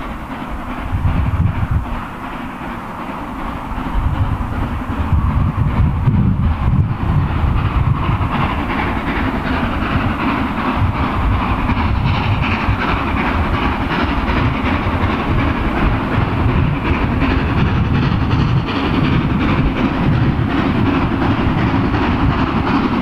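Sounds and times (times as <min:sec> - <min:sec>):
steam locomotive exhaust beats: 0:00.0 - 0:23.0
train rumbling on rails: 0:00.0 - 0:23.0.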